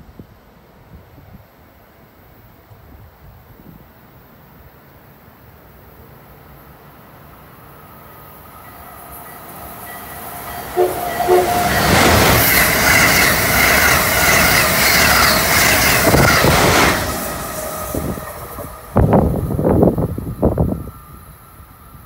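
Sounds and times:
train rushing past: 6.4 - 22.0
train horn toots: 9.9 - 13.2.

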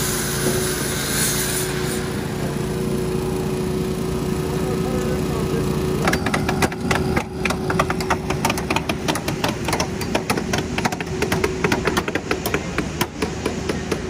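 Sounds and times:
small engine running: 0.0 - 14.0
hammers driving nails into wood: 6.0 - 14.0.

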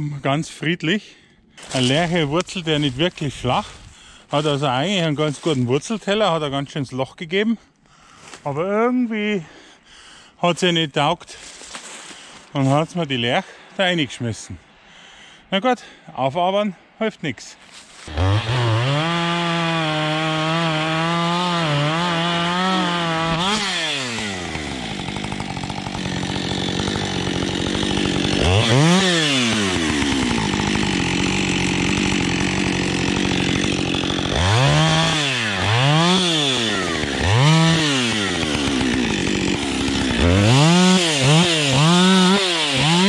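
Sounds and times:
chainsaw revving and idling: 1.6 - 6.1, 18.0 - 43.0.

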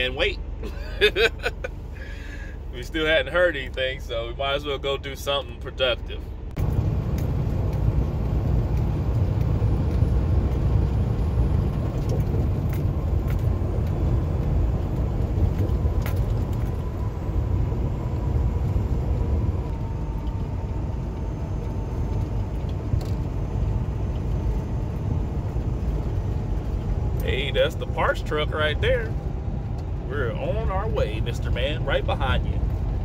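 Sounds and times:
truck engine and road rumble: 0.0 - 33.0.

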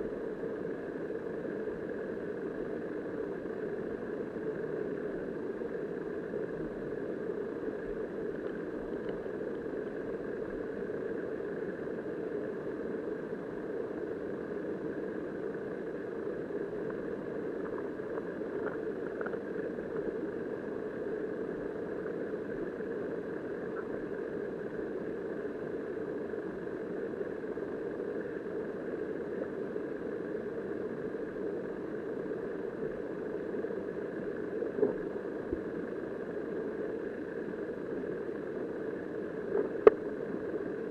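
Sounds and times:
muffled underwater river rush: 0.0 - 40.9
faint ticks: 8.3 - 9.6, 17.6 - 20.1, 39.5 - 40.0.

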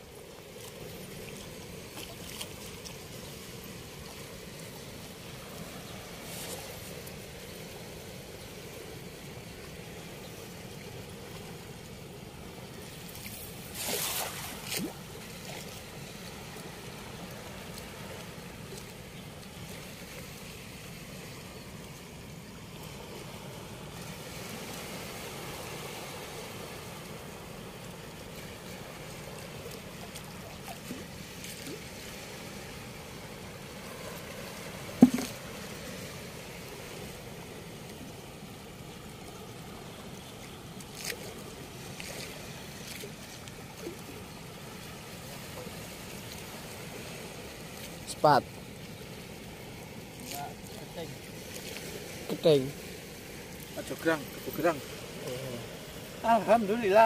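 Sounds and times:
river water flowing at a weir: 0.0 - 57.0
sharp knock: 35.0 - 35.3.

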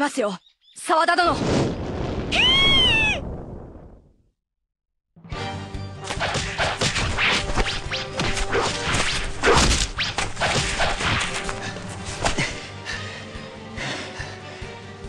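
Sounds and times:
background music: 5.2 - 15.0.

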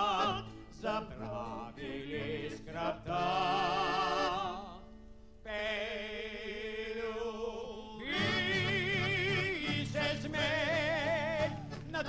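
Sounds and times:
male vocal group singing: 0.0 - 4.8, 5.5 - 12.0
accordion: 0.0 - 5.0, 8.0 - 12.0
guitar: 0.0 - 5.6, 7.8 - 12.0.

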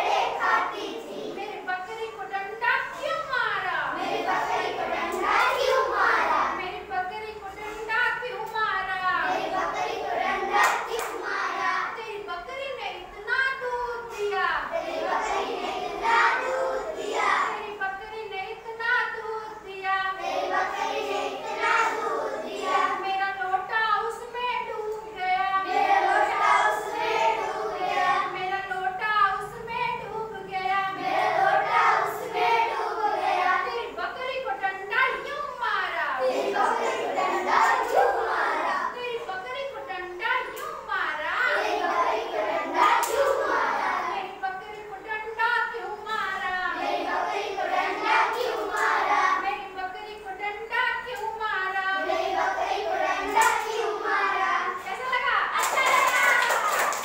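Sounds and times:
children singing together: 0.0 - 1.6, 3.8 - 6.9, 9.1 - 12.0, 13.8 - 17.7, 19.2 - 23.0, 25.0 - 28.8, 30.2 - 34.1, 36.2 - 39.0, 41.4 - 44.4, 45.9 - 49.8, 51.9 - 54.9
hand claps: 55.6 - 57.0.

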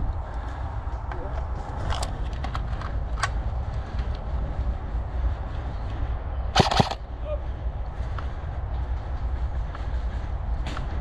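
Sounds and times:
steady low rumble: 0.0 - 11.0
loud sharp cracks: 6.6 - 7.0.

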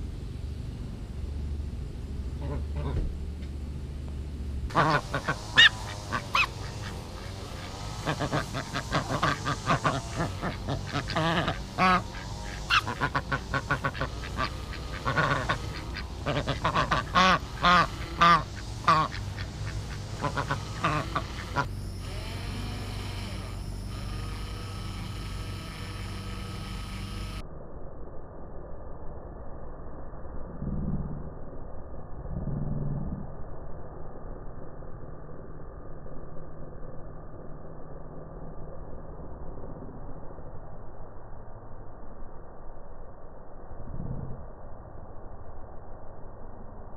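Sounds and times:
steady hum: 0.0 - 46.9
ducks quacking: 2.4 - 3.0, 4.7 - 21.7.

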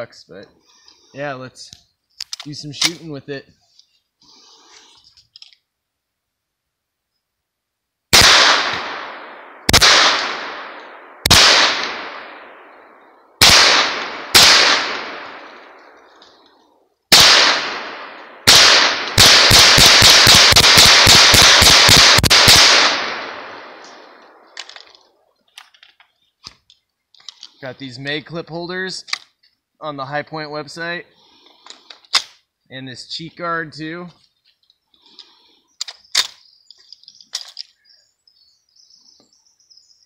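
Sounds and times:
gunshots with echo: 8.1 - 16.1, 17.1 - 24.6.

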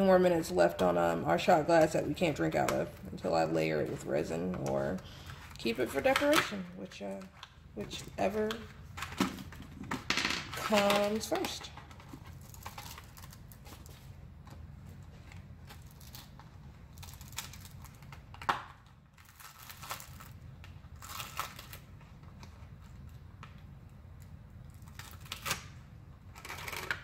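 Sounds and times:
plastic mold crinkling: 3.8 - 23.6.

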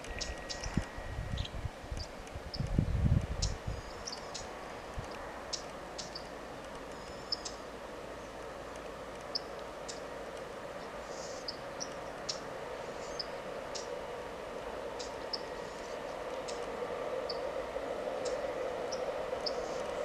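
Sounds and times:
steady background hum: 0.0 - 20.0
small birds chirping: 1.4 - 4.6, 5.5 - 7.7, 9.2 - 10.1, 10.8 - 14.0, 15.0 - 17.4.

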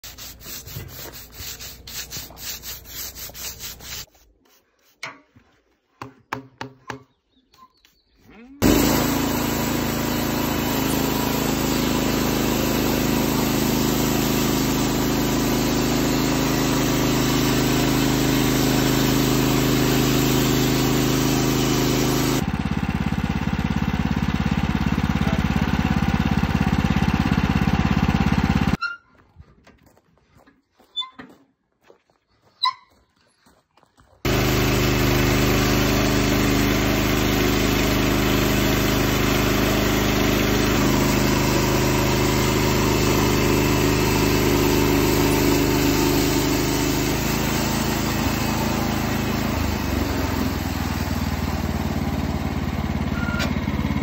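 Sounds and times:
band sawmill cutting log: 0.0 - 4.1, 8.6 - 28.8, 34.3 - 54.0
brush scrubbing bark: 0.0 - 5.8.

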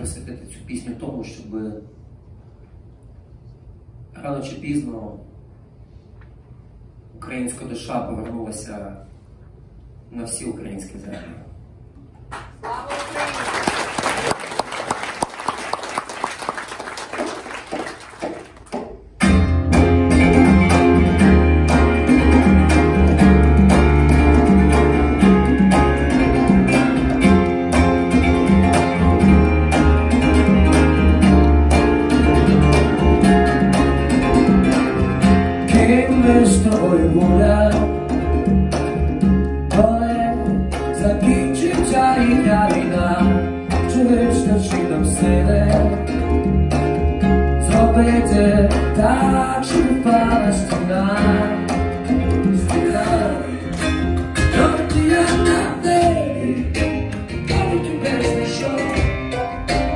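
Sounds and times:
audience clapping: 12.2 - 19.1
double bass notes: 19.2 - 59.9
grand piano: 19.2 - 59.9.

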